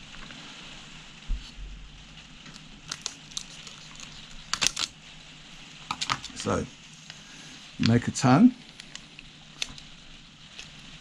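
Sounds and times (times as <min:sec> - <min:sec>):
sharp clicks and rustles: 0:02.4 - 0:05.0, 0:05.9 - 0:07.2, 0:07.8 - 0:11.0.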